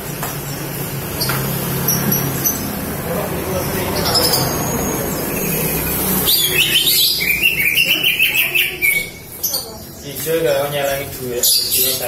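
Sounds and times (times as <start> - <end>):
bird singing chirping notes: 3.5 - 10.2.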